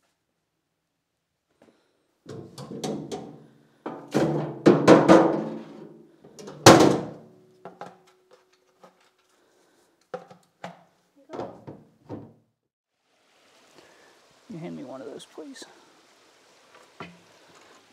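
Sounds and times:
dustpan knocking on metal can: 0:02.3 - 0:05.8.

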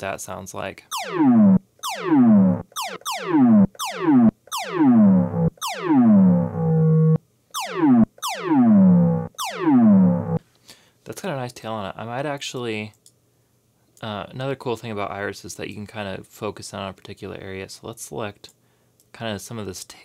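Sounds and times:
synthesized laser blaster shots: 0:00.9 - 0:10.4.

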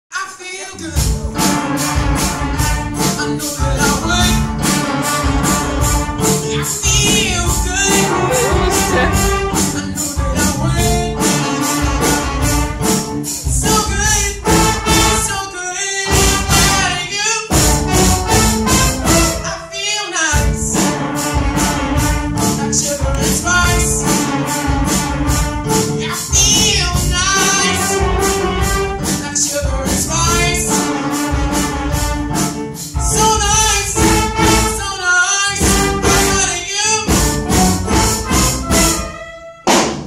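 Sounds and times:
brass band playing soul music: 0:00.4 - 0:40.0
young man singing into microphone: 0:06.5 - 0:11.3, 0:19.4 - 0:20.6, 0:26.0 - 0:28.0, 0:33.0 - 0:34.2, 0:34.8 - 0:37.1.

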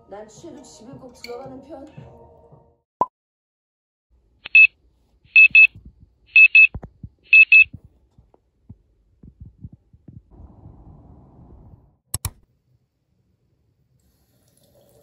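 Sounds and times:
electronic alarm beeping: 0:04.5 - 0:04.7, 0:05.4 - 0:05.7, 0:06.3 - 0:06.7, 0:07.3 - 0:07.7
soft low thumps: 0:05.5 - 0:11.9.

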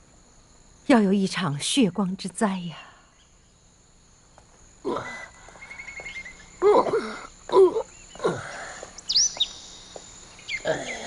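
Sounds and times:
man grunting and calling: 0:06.6 - 0:08.8, 0:10.6 - 0:11.0
bird chirping trill: 0:09.0 - 0:11.0.

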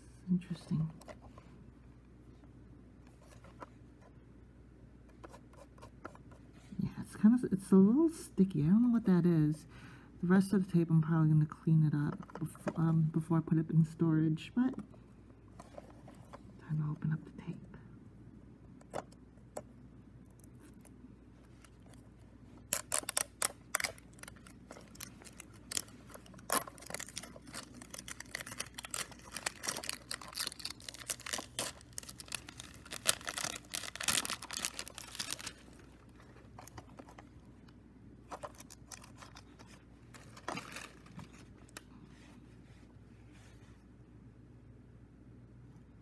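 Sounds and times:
cellophane crinkling: 0:20.4 - 0:41.9.

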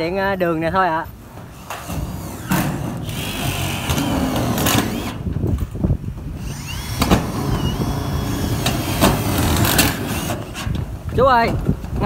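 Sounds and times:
cordless drill motor whines: 0:02.4 - 0:05.2, 0:06.4 - 0:10.6.

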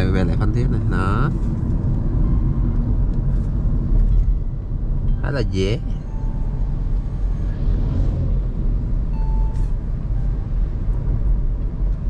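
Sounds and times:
engine and tyre noise in cabin: 0:00.0 - 0:12.0
faint tone: 0:04.1 - 0:08.4, 0:09.1 - 0:10.6.

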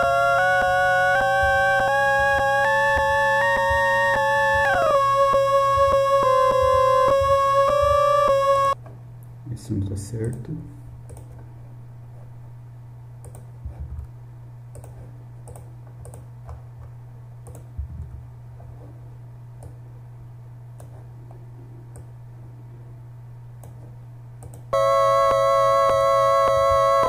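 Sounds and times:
buzzy chiptune note: 0:00.0 - 0:08.8, 0:24.8 - 0:27.0
low electrical hum: 0:00.0 - 0:27.0.

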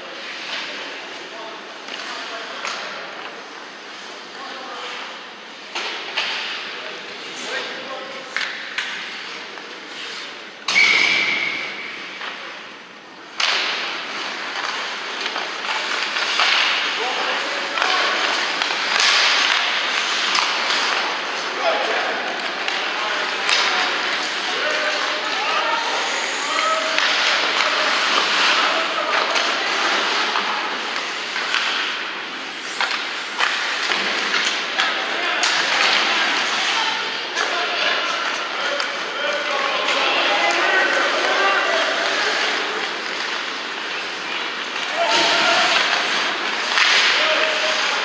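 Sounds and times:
hockey sticks clacking: 0:01.8 - 0:04.2, 0:04.9 - 0:12.6, 0:13.3 - 0:48.0
referee's whistle: 0:10.7 - 0:11.7
skates scraping on ice: 0:13.4 - 0:48.0.

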